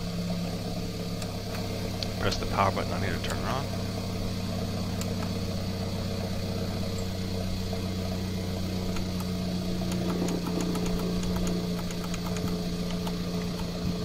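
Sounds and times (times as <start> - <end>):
car engine idling: 0.0 - 14.0
light clicks: 9.9 - 13.7.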